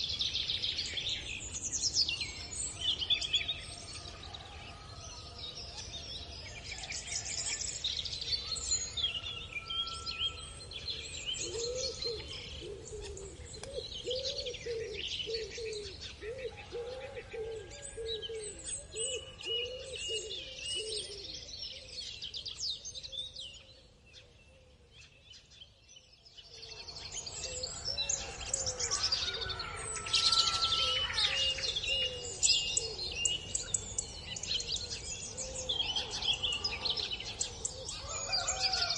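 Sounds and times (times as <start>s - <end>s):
small birds chirping: 10.3s - 38.9s.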